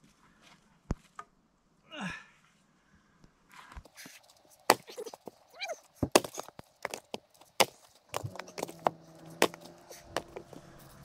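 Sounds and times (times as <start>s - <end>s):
firewood knocking on woodpile: 6.0s - 10.6s.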